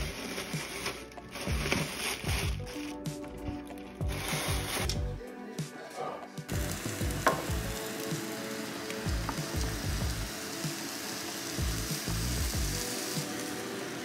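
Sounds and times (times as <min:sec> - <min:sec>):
batter sizzling on hot plates: 0:06.5 - 0:14.0.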